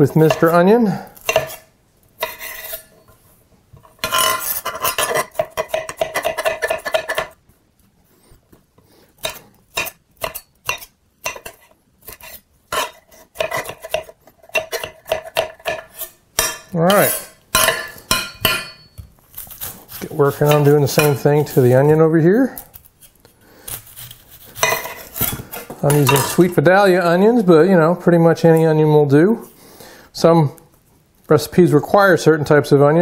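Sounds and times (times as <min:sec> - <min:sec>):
knife chopping on stone board: 0:01.2 - 0:01.6, 0:04.0 - 0:07.4, 0:09.2 - 0:19.0, 0:19.6 - 0:21.2.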